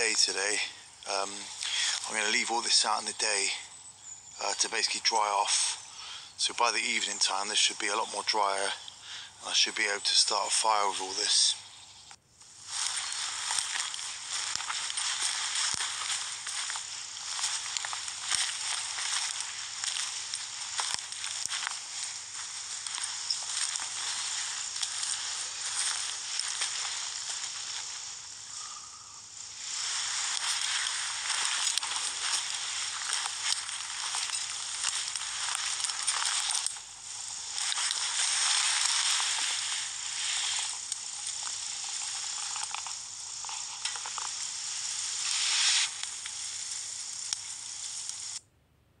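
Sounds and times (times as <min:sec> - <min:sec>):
wood fire crackling: 0:00.0 - 0:48.4.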